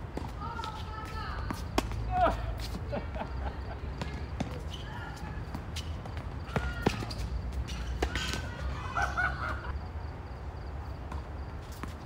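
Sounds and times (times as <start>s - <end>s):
tennis ball hit by rackets: 1.5s - 2.0s, 6.5s - 8.7s
ball bouncing on hard court: 4.0s - 4.8s, 5.5s - 8.6s
shoe squeaks: 4.0s - 8.8s.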